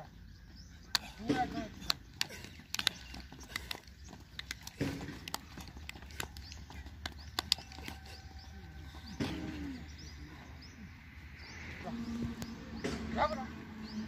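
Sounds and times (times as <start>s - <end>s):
sharp clicks: 0.8s - 8.2s.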